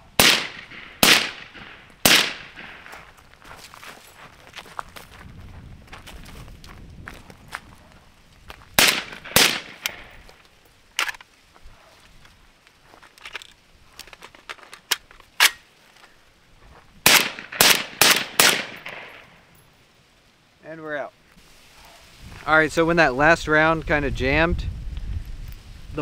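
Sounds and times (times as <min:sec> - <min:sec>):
suppressed rifle shots: 0:00.2 - 0:02.9, 0:08.8 - 0:10.1, 0:17.0 - 0:19.3
footsteps: 0:00.6 - 0:17.0.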